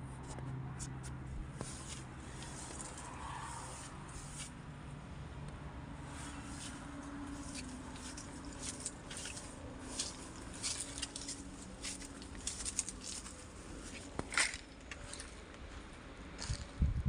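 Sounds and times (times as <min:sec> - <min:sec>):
steady low rumble: 0:00.0 - 0:17.0
footsteps through dry grass: 0:01.5 - 0:04.6, 0:06.1 - 0:16.8.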